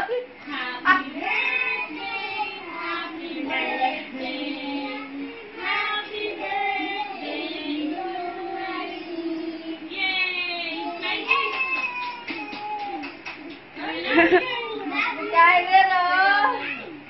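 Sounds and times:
high voice singing slowly: 2.6s - 9.9s.

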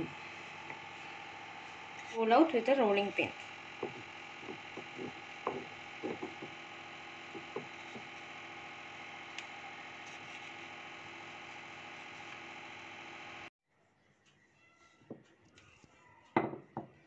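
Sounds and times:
steady machine hum: 0.0s - 13.5s
rolling pin knocking on board: 3.8s - 6.6s, 7.3s - 8.1s.

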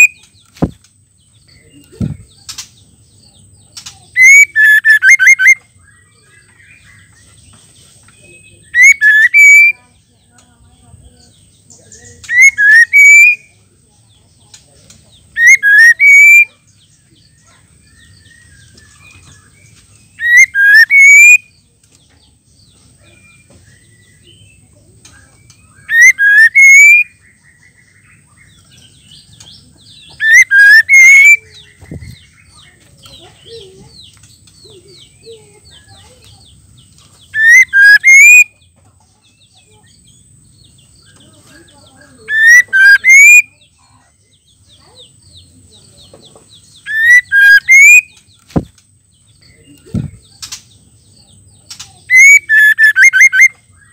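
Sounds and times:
soft bird twittering: 0.0s - 53.9s
bird whistling rising notes: 4.2s - 5.6s, 8.8s - 9.8s, 12.3s - 13.4s, 15.4s - 16.5s, 20.2s - 21.4s, 25.8s - 27.1s, 30.1s - 31.4s, 37.4s - 38.5s, 42.3s - 43.5s, 46.8s - 48.2s, 52.1s - 53.6s.

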